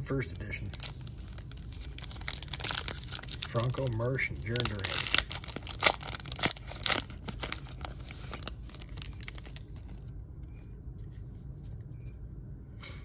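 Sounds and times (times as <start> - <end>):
foil wrapper crinkling and tearing: 0.7 - 10.1.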